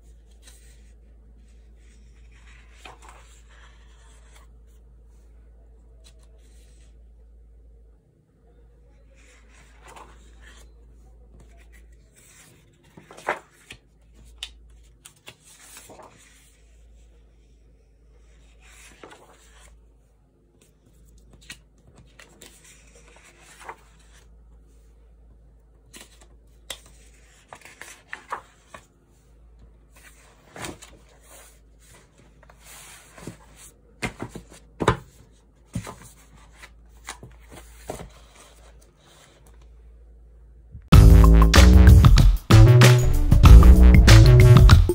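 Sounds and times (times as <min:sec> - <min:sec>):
paper pages rustling: 0:00.0 - 0:05.2, 0:09.0 - 0:17.0, 0:18.2 - 0:19.8, 0:20.6 - 0:24.9, 0:25.8 - 0:39.8.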